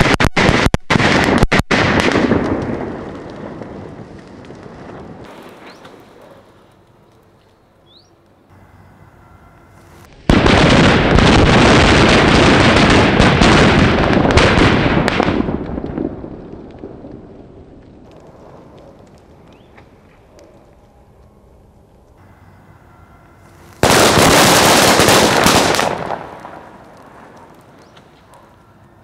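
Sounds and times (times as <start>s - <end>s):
firecrackers crackling bangs: 0.0s - 6.8s, 9.7s - 20.3s, 23.2s - 29.0s
faint scattered crackles: 0.0s - 10.7s, 15.0s - 29.0s.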